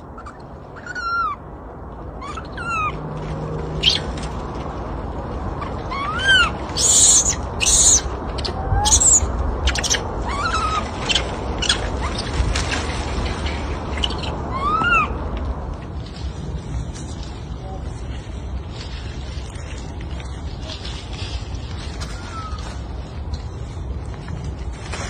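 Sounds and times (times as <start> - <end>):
low rumble: 0.0 - 25.0
infant monkey crying: 0.1 - 1.5, 2.2 - 3.0, 5.6 - 12.2, 14.0 - 15.2.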